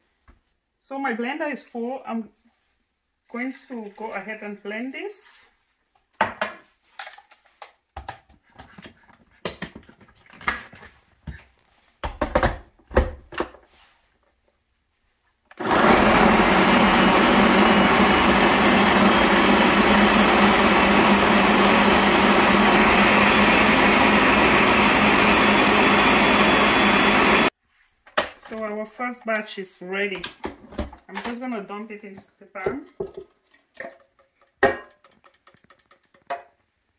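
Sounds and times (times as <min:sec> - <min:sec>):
blender whirring: 0:15.5 - 0:27.5.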